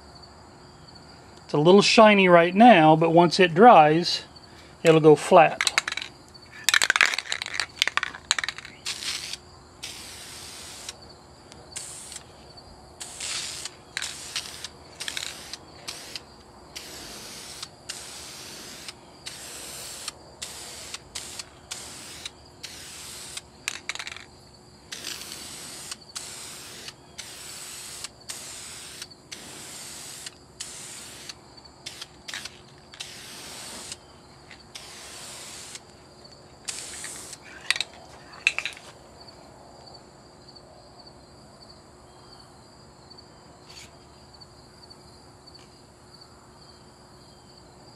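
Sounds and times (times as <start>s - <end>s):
aerosol spray paint hissing: 8.5s - 11.0s, 11.8s - 12.3s, 13.0s - 23.9s, 24.9s - 34.0s, 34.7s - 35.9s, 36.7s - 37.4s.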